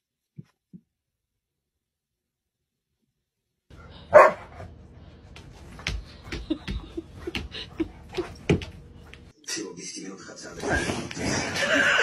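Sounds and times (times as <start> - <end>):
dog barking: 4.1 - 4.6.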